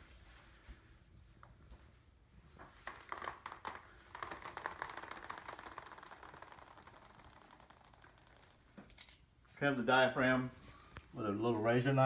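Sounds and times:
rapid fine crackle: 0:02.8 - 0:08.6.

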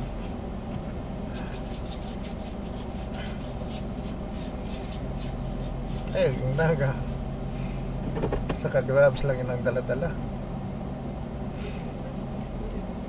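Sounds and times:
vehicle engine idling: 0:00.0 - 0:13.0
rustling scrapes near microphone: 0:01.3 - 0:07.3.

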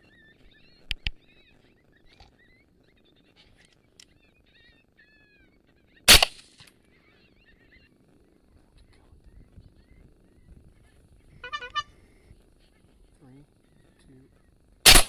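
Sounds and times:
rifle shot echoing: 0:06.1 - 0:06.7
sharp small crack: 0:06.1 - 0:06.8
faint short high calls: 0:11.3 - 0:12.2.

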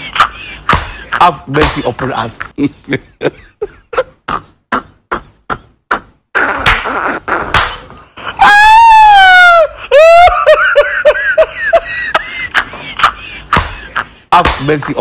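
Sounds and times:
high-pitched scream: 0:08.4 - 0:10.3.

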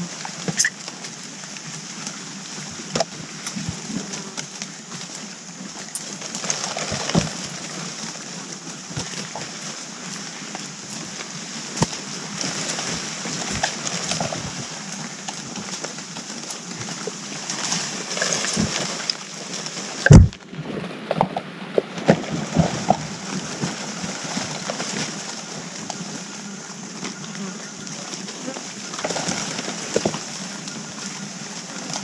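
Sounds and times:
rustling in dry leaves: 0:00.0 - 0:32.0
loud thump: 0:20.1 - 0:20.4.

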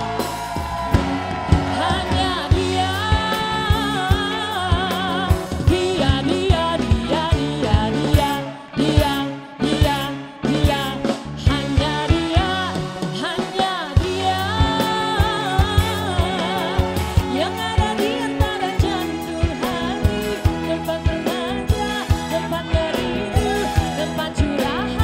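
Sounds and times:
drum beat: 0:00.0 - 0:04.3
bass: 0:00.0 - 0:25.0
person singing: 0:00.0 - 0:25.0.

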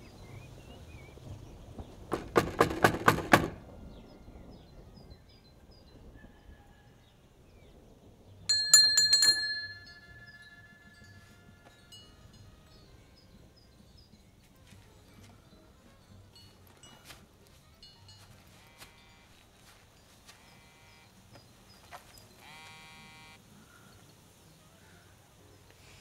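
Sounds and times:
knocks on wooden door: 0:02.1 - 0:03.6
hand bell ringing: 0:08.5 - 0:12.9, 0:16.0 - 0:19.8.

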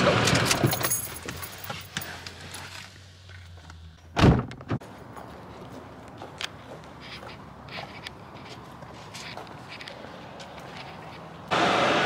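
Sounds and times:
car door shutting: 0:04.2 - 0:04.8.

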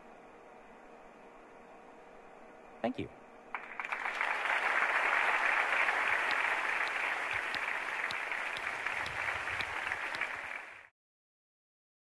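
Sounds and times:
audience applauding: 0:03.5 - 0:10.9.

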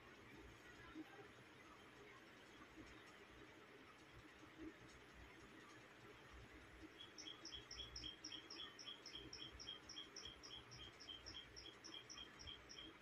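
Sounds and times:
small bird chirping: 0:06.8 - 0:13.0.

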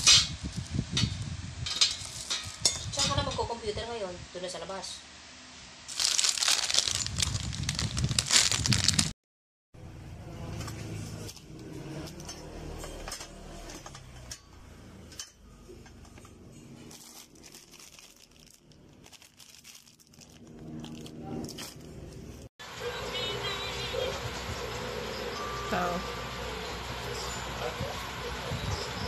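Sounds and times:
plastic bag crinkling: 0:05.9 - 0:09.2, 0:16.9 - 0:21.8.

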